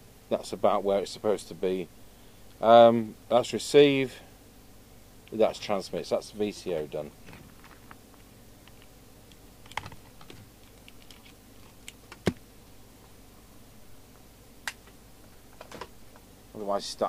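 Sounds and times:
small clicks and taps from handling gear: 0:07.6 - 0:12.4.

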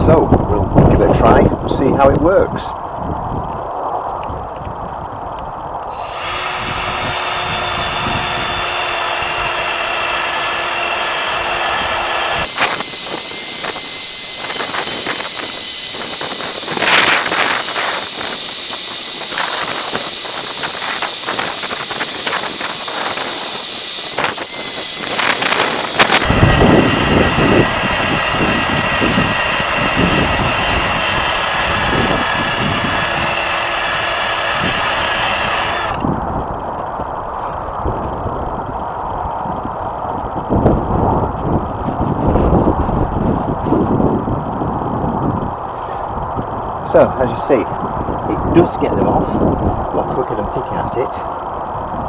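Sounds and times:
cordless drill whine: 0:05.9 - 0:36.1.

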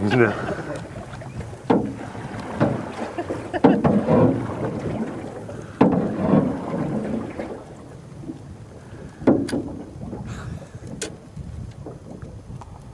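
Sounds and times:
wind on microphone: 0:00.0 - 0:12.9
knocks in aluminium boat: 0:01.0 - 0:07.7, 0:09.2 - 0:10.2.

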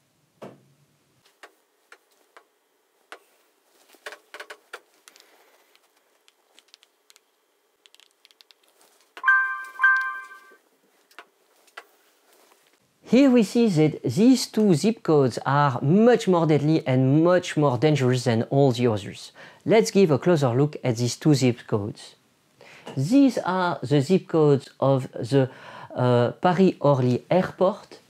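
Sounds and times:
light clicks and taps: 0:04.0 - 0:09.2
short electronic chime: 0:09.2 - 0:10.6.

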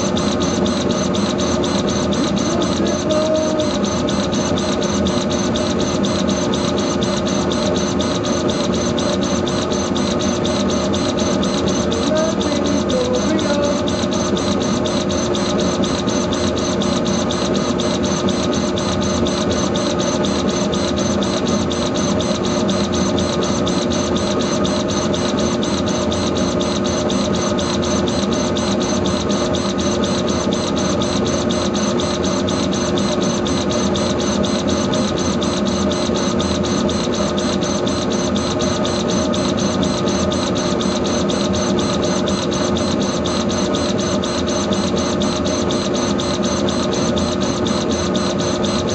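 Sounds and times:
laser engraver head sweeping: 0:00.0 - 0:48.9
steady machine hum: 0:00.0 - 0:48.9.

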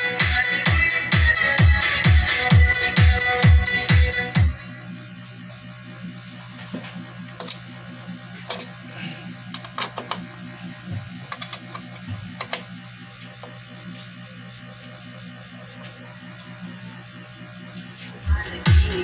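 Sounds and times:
low electrical hum: 0:02.5 - 0:19.0
cable plugs clicking into jacks: 0:09.5 - 0:10.3, 0:11.3 - 0:12.7.

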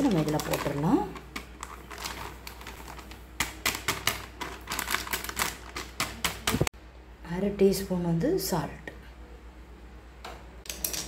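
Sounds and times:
plastic packet crinkling: 0:00.0 - 0:06.6.

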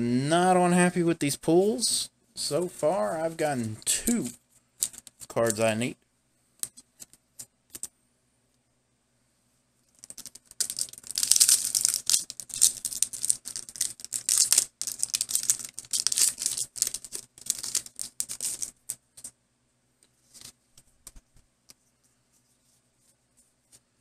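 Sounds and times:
foil wrapper crinkling and tearing: 0:10.1 - 0:18.8.

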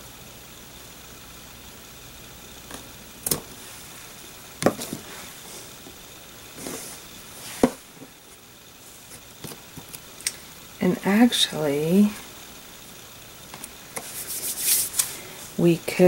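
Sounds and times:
soft rustling: 0:04.8 - 0:05.9.

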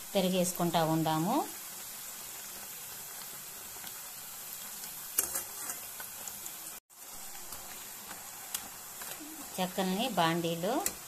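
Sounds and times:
food sizzling in hot oil: 0:00.0 - 0:11.0.

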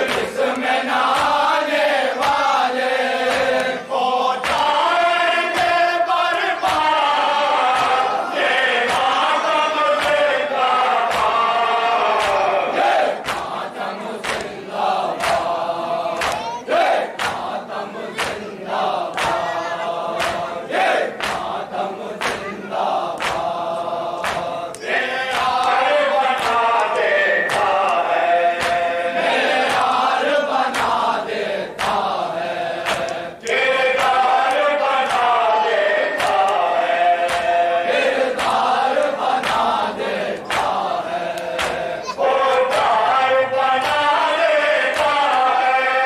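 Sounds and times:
men chanting in chorus: 0:00.0 - 0:46.0
hands beating on chests: 0:19.1 - 0:19.5, 0:21.2 - 0:21.6, 0:23.1 - 0:23.5.

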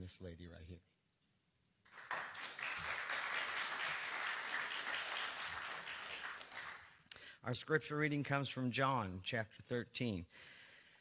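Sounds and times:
crowd applauding: 0:01.8 - 0:07.0.

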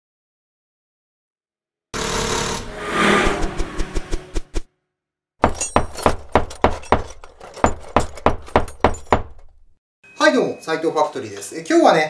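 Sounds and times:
sharp low hits: 0:02.6 - 0:04.7.

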